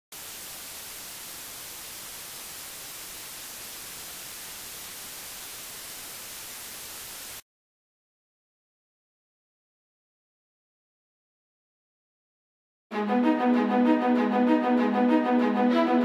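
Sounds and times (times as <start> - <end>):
static hiss: 0.1 - 7.4.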